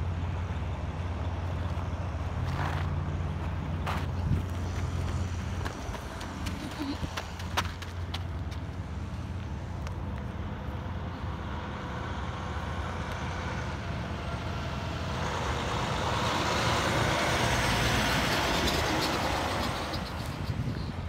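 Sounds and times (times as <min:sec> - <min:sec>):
truck diesel engine passing: 0:00.0 - 0:21.0
tyre noise: 0:02.4 - 0:08.7.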